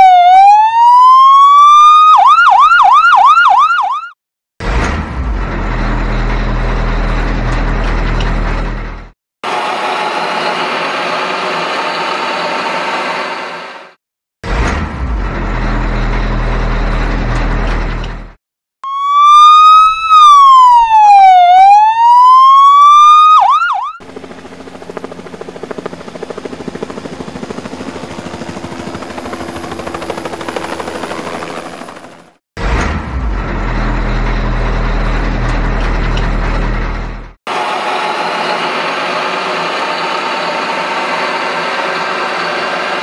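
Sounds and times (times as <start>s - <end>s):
electronic siren wailing: 0.0s - 4.2s, 18.8s - 24.0s
vehicle engine rumble: 4.6s - 12.5s, 14.5s - 18.4s, 24.0s - 43.0s.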